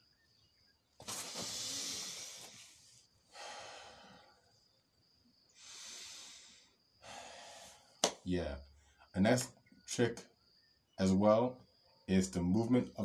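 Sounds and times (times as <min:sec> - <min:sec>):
man breathing deeply: 0:01.1 - 0:04.6, 0:05.5 - 0:08.0.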